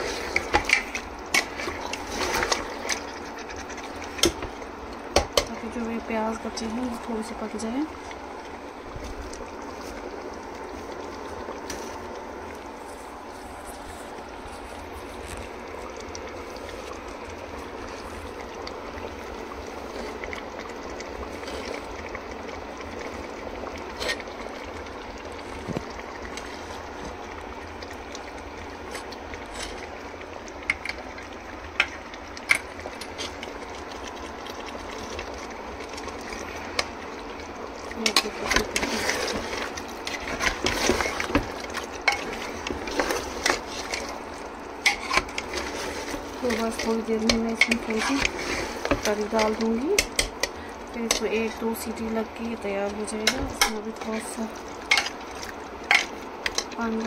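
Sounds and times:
onions simmering in water: 0:00.0 - 0:57.0
metal spoon scraping a pot: 0:44.9 - 0:49.0.

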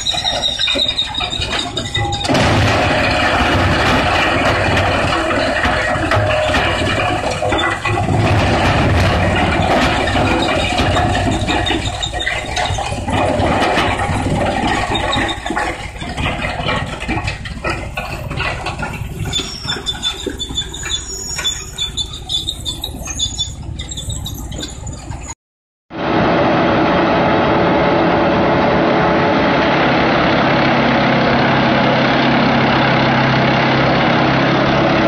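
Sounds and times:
high squeals: 0:00.0 - 0:15.7, 0:18.2 - 0:25.4.

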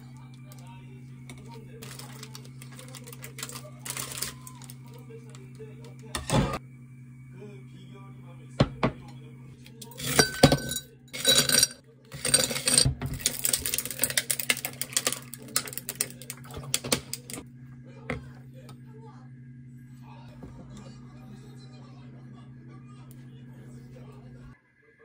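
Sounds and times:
water pouring over ice: 0:01.8 - 0:05.0, 0:13.2 - 0:17.4
ice clinking against glass: 0:09.9 - 0:16.4.

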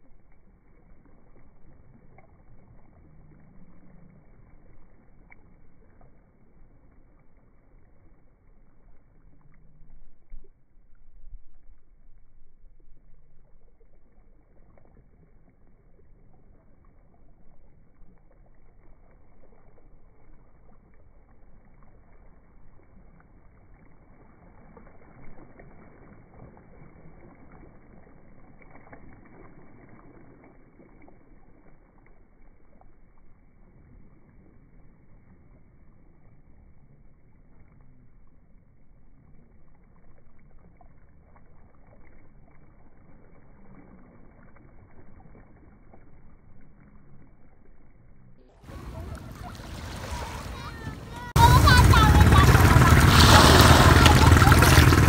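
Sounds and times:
waves lapping on pebble beach: 0:48.7 - 0:55.0.

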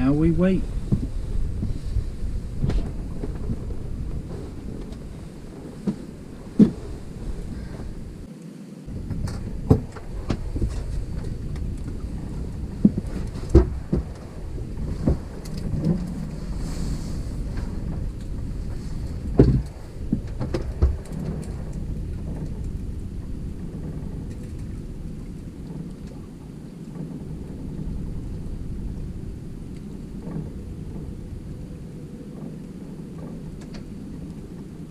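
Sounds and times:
wind: 0:00.0 - 0:34.9
hollow thumps of footsteps on deck: 0:00.8 - 0:08.0.

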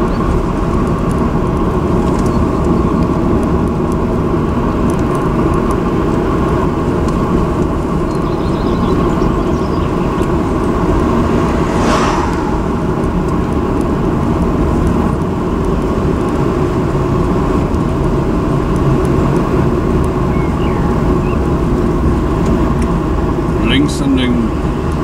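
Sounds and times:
vehicle engine and road noise: 0:00.0 - 0:25.0
car passing with whoosh: 0:09.2 - 0:15.4.

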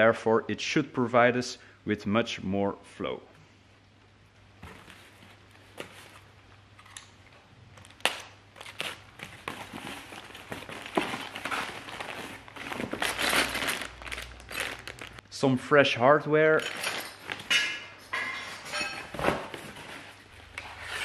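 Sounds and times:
cardboard tearing and crinkling: 0:07.8 - 0:15.2
plastic bag of hardware handled: 0:08.6 - 0:15.2, 0:16.6 - 0:17.6.

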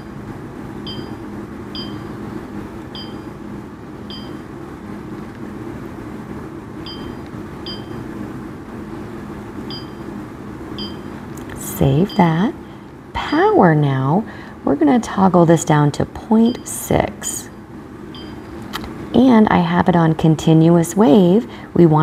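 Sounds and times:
low hum: 0:00.0 - 0:12.9
short electronic beeps: 0:00.9 - 0:01.2, 0:01.8 - 0:02.1, 0:03.0 - 0:03.3, 0:06.9 - 0:08.0, 0:09.7 - 0:10.0, 0:10.8 - 0:11.1, 0:18.2 - 0:18.4.

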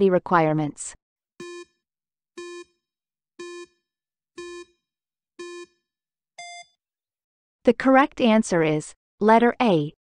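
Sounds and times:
short electronic beeps: 0:06.4 - 0:06.7.

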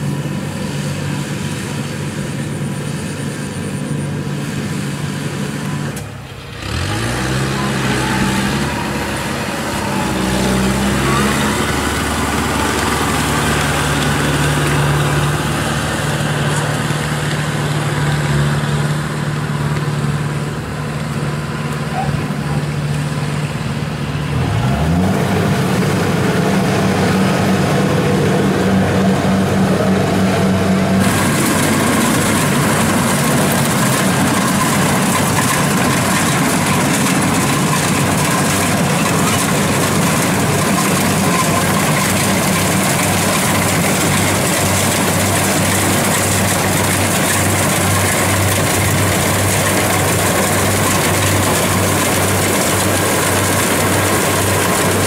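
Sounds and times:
broad rushing machine noise: 0:00.0 - 0:55.0
diesel engine running: 0:00.0 - 0:55.0.

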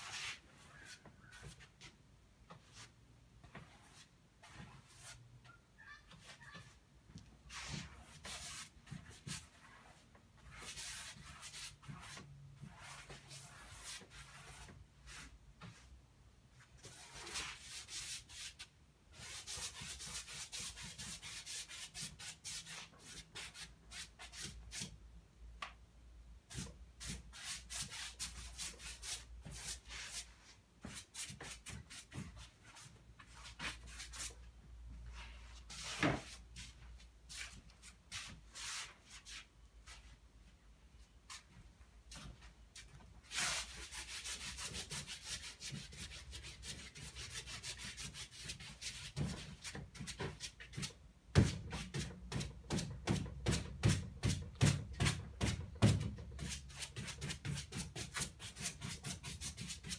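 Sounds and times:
paintbrush scrubbing canvas: 0:07.5 - 0:15.3.

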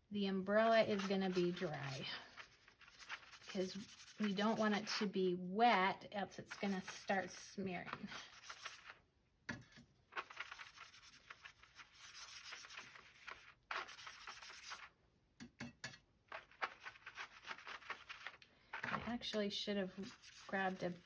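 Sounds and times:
brush rubbing on paper: 0:00.6 - 0:05.1, 0:06.4 - 0:09.0, 0:10.2 - 0:14.9, 0:16.3 - 0:18.4, 0:19.9 - 0:21.0.

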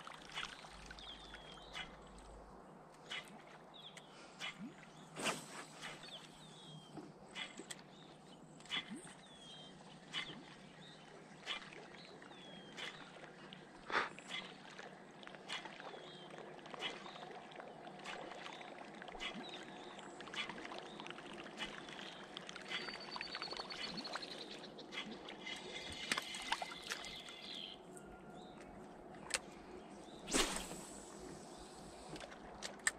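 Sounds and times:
light water sounds: 0:00.0 - 0:32.9.

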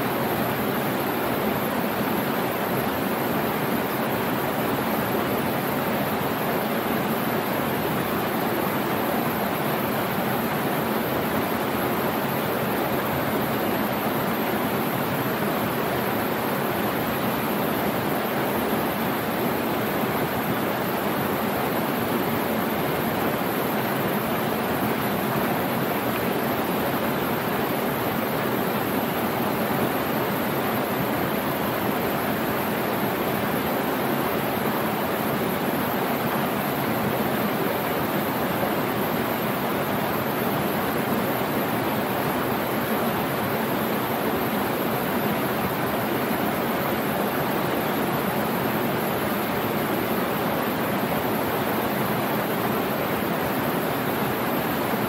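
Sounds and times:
waterfall rushing over rocks: 0:00.0 - 0:55.0.

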